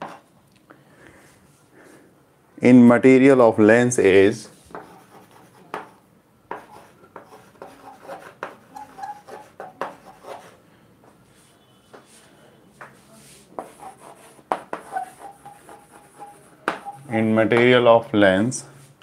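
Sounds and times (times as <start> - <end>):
chalk tapping and scratching: 0.0 - 0.3, 4.6 - 17.7.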